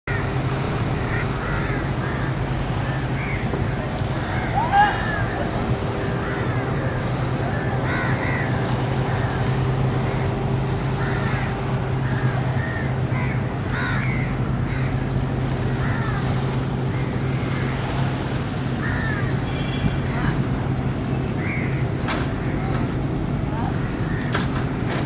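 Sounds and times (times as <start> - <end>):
crows cawing: 0.1 - 3.7, 6.2 - 10.3, 10.9 - 17.8, 18.8 - 19.4, 21.4 - 22.6
steady low hum: 0.1 - 24.8.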